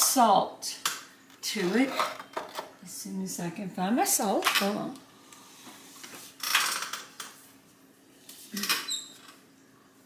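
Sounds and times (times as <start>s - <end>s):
kitchen items clattering: 1.4s - 2.8s.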